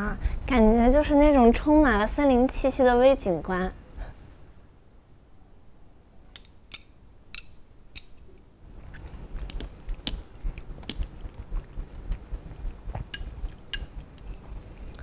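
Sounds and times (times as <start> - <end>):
wooden chopsticks clicking: 6.4 - 8.2, 9.5 - 11.1, 13.1 - 13.9.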